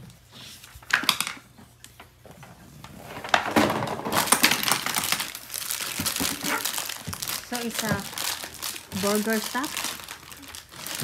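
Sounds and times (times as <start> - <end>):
packaging rustling and crinkling: 3.2 - 11.0.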